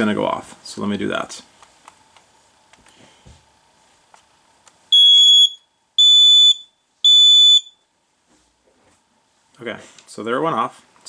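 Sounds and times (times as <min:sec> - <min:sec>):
smoke alarm beeps: 0:04.9 - 0:07.8.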